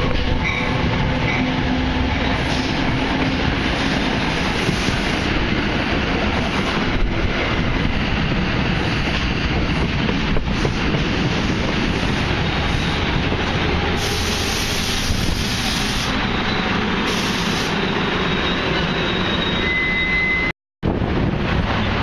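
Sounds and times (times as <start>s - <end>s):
train coaches rumbling on track: 0.0s - 22.0s
thin wheel squeal: 14.1s - 20.5s.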